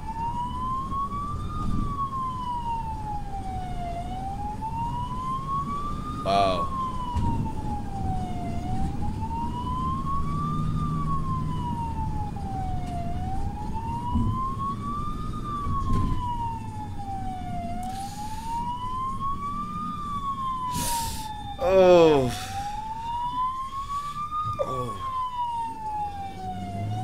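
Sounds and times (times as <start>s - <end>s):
ambulance siren wailing: 0.0s - 27.0s
moving vehicle rumble: 5.5s - 27.0s.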